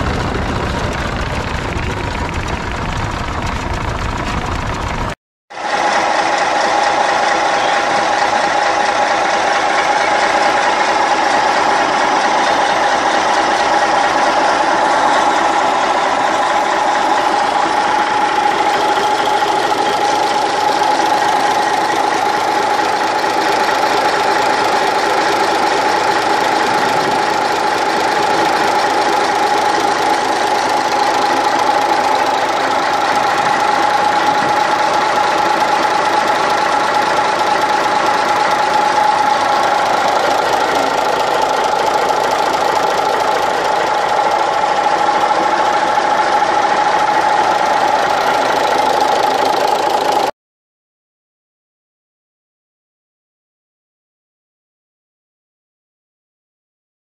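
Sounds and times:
diesel engine running: 0.0s - 50.3s.

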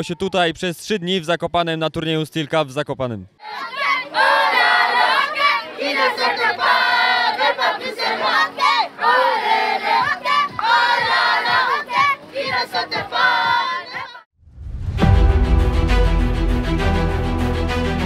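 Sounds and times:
boys shouting and chanting: 3.4s - 14.2s.

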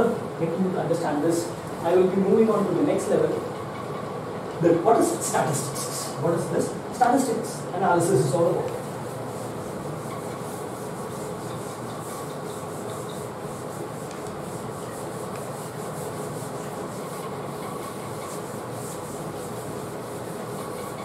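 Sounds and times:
duster rubbing on chalkboard: 5.0s - 6.2s, 8.0s - 21.0s.

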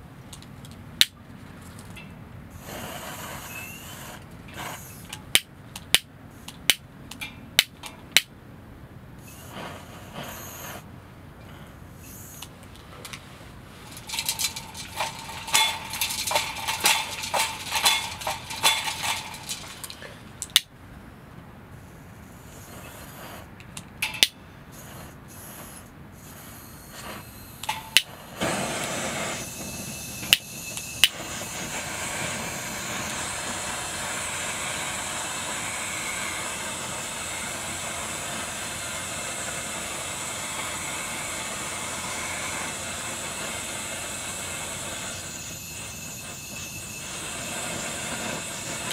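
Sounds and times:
burner hissing: 1.8s - 8.3s, 9.2s - 20.7s, 21.7s - 48.9s
squeaky pump strokes: 1.9s - 5.4s, 13.8s - 20.2s, 29.3s - 31.8s, 45.1s - 48.9s
sharp clicks: 13.9s - 20.7s.

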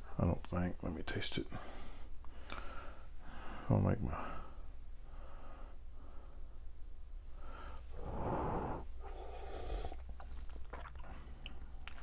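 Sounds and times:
low steady hum: 0.0s - 12.0s
breathing out: 7.4s - 10.0s.

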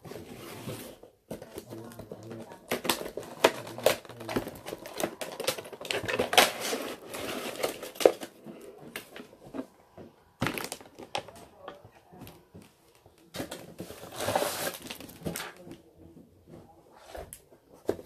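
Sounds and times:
plastic packaging rustling: 0.5s - 9.6s, 10.4s - 15.8s
cardboard box being opened: 13.9s - 15.4s.

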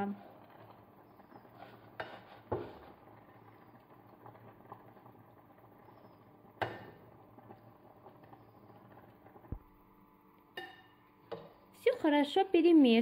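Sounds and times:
faint scraping and rustling: 0.0s - 6.3s.

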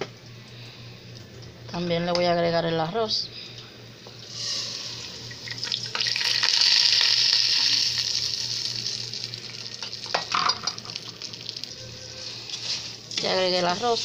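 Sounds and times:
rice sizzling in hot oil: 4.2s - 14.0s.

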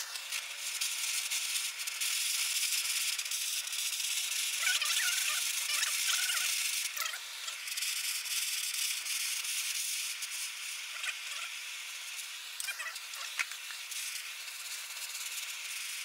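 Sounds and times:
gas torch hissing: 0.0s - 16.0s
wavering chirps: 4.6s - 7.6s, 12.6s - 13.4s.

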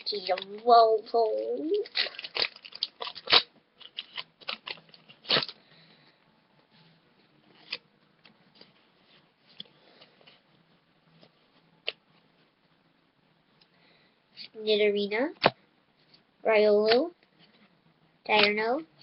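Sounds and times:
trading cards rustling: 1.6s - 5.6s
foil wrapper crinkling: 1.8s - 5.6s.

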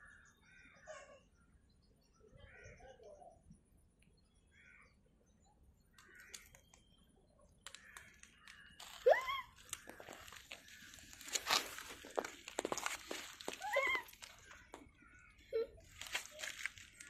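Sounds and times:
rustling and crunching: 7.6s - 17.0s.

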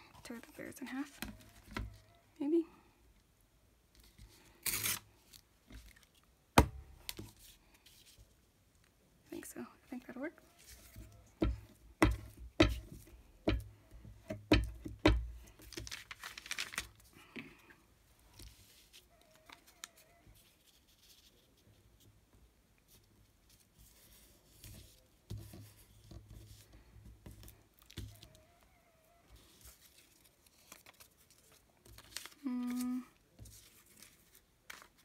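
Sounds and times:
paper rustling and tearing: 4.0s - 6.2s, 15.6s - 17.1s, 29.4s - 35.0s.

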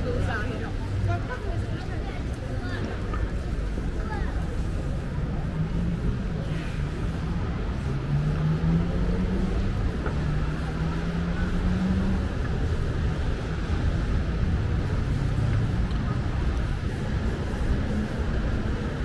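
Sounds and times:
rumble of passing cars: 0.0s - 19.0s
car engine accelerating: 7.4s - 15.8s.

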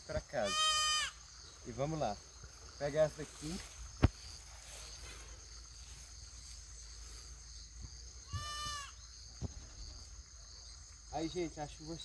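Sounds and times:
goat bleating: 0.4s - 1.2s, 8.3s - 9.0s.

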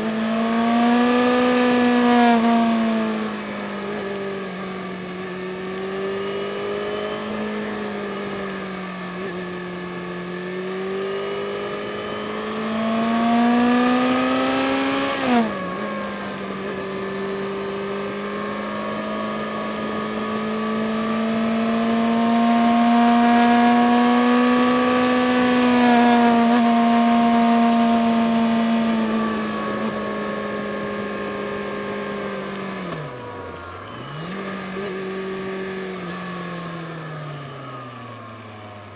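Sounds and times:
motorcycle engine climbing: 0.0s - 38.9s.

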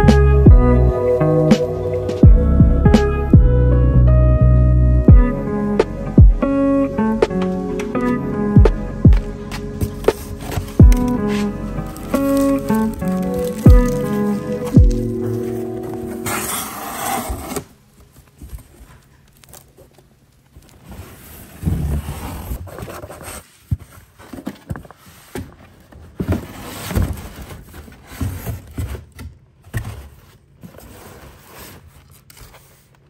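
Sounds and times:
music: 0.0s - 16.8s
box scraping against cardboard: 9.2s - 17.7s, 20.8s - 25.5s, 26.1s - 33.0s.

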